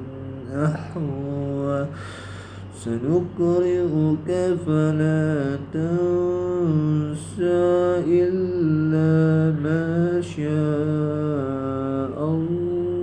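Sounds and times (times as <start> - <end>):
man chanting recitation: 0.0 - 13.0.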